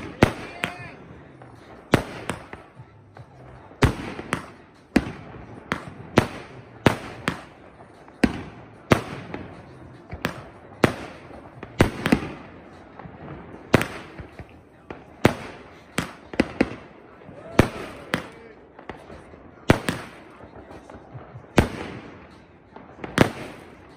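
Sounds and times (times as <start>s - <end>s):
fireworks bangs with echo: 0.0s - 23.9s.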